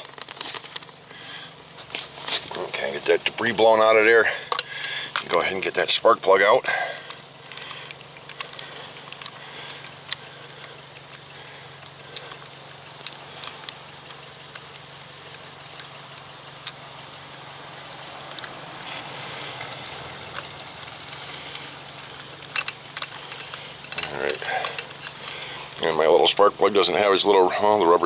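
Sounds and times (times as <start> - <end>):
steady low hum: 0.0 - 28.0
socket wrench clicks and ticks: 7.1 - 16.8, 18.1 - 18.6, 19.6 - 21.2, 22.2 - 25.8.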